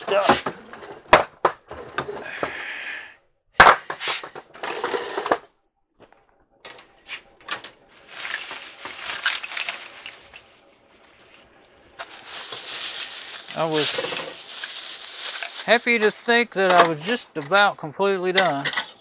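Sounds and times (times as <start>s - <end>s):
clutter knocking and clattering: 0.0s - 2.5s
rustling and shuffling: 6.0s - 18.9s.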